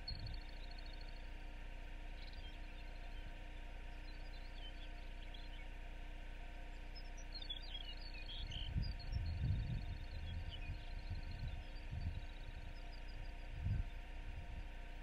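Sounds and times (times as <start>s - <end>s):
steady low hum: 0.0s - 15.0s
wind buffeting microphone: 8.4s - 14.8s.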